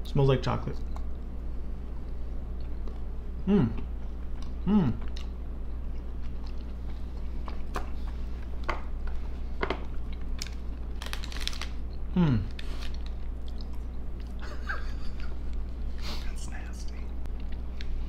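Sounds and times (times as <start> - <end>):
people chewing: 2.6 - 11.6.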